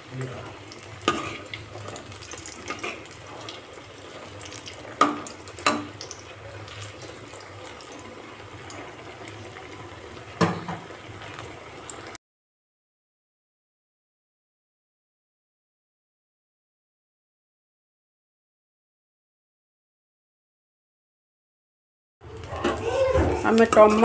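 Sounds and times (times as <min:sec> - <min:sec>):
batter sizzling in hot oil: 0:00.0 - 0:12.2, 0:22.2 - 0:24.0.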